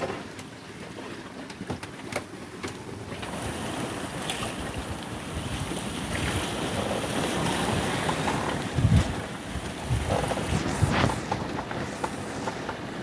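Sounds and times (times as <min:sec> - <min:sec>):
waves washing past boat hull: 0:00.0 - 0:13.0
wind on microphone: 0:03.3 - 0:13.0.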